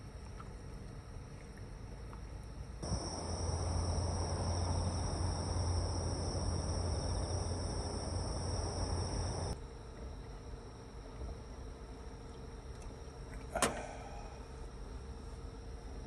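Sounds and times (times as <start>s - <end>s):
low steady rumble: 0.0s - 16.0s
insects trilling: 2.8s - 9.6s.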